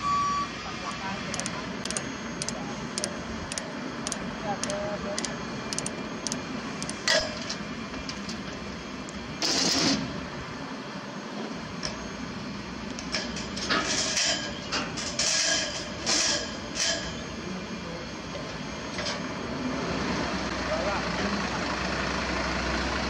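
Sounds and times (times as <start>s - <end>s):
heavy truck running: 0.0s - 23.0s
sharp click: 1.3s - 7.3s.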